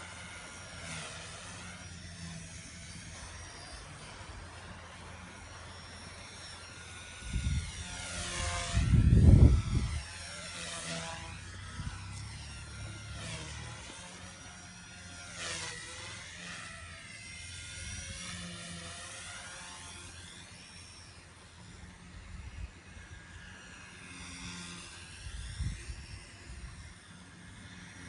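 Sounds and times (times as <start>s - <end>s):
rc helicopter motor and rotor whine: 0.0s - 28.0s
wind buffeting microphone: 7.2s - 10.2s, 25.2s - 26.9s.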